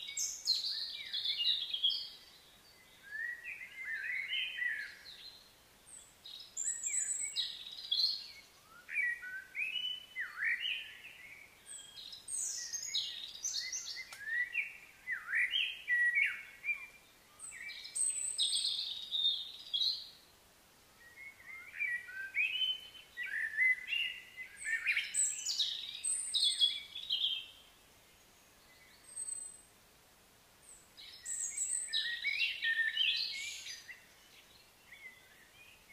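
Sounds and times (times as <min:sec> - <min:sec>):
birds chirping: 0:30.6 - 0:35.9.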